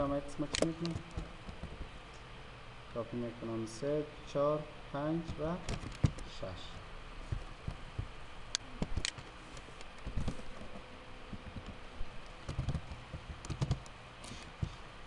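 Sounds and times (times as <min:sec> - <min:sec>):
keyboard typing clicks: 0:09.9 - 0:14.8.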